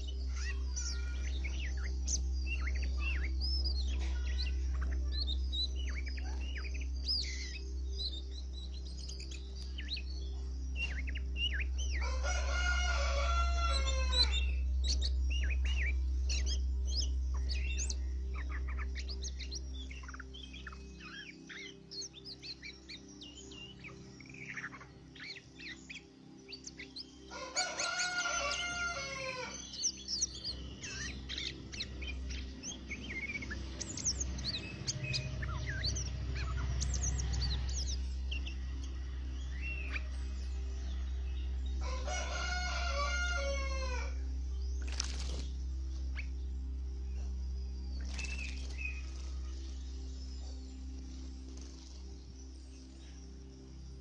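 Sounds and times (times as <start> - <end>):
small birds chirping: 0.0 - 54.0
rooster crowing: 12.0 - 14.4, 27.3 - 29.6, 41.8 - 44.2.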